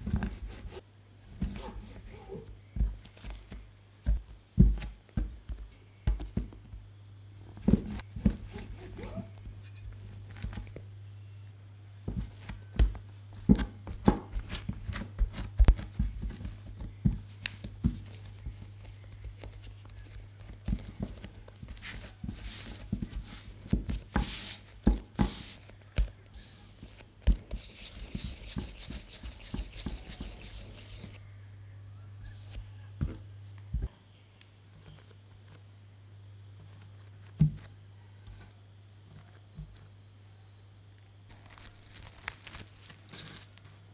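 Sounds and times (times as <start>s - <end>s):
hands patting bread dough: 1.4s - 6.9s, 12.1s - 31.2s.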